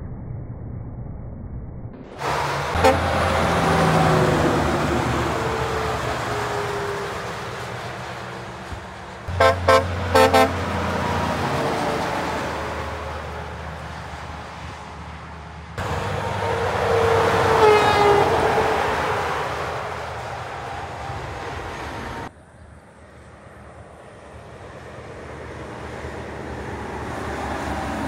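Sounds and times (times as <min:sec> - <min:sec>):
heavy trucks passing: 0:02.0 - 0:28.0
truck air horn toots: 0:02.2 - 0:08.7, 0:09.3 - 0:13.6, 0:15.8 - 0:20.0.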